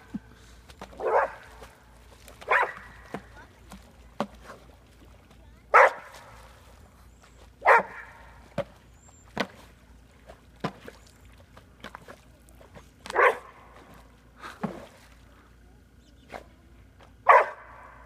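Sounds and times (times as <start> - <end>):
dog barking: 1.0 - 1.4, 2.5 - 2.9, 5.7 - 6.1, 7.6 - 8.2, 13.1 - 13.5, 17.2 - 17.9.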